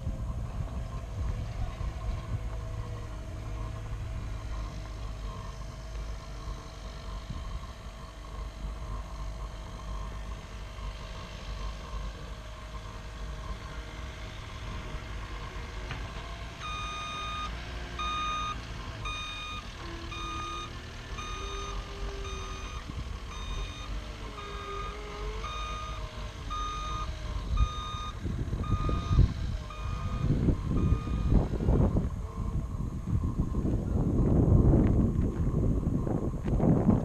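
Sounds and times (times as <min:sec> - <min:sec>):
wind buffeting microphone: 0:00.0 - 0:08.6, 0:26.2 - 0:37.0
low work site rumble: 0:00.0 - 0:37.0
back-up alarm beeping: 0:16.6 - 0:31.5.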